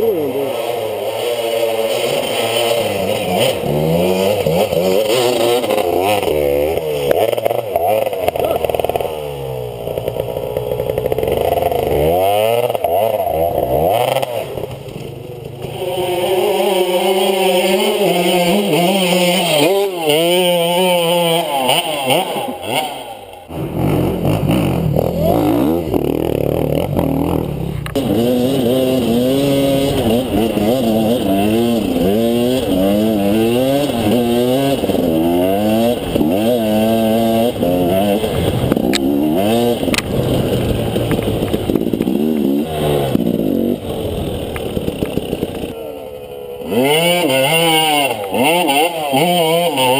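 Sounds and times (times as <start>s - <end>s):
dirt bike engine revving: 0.0s - 49.9s.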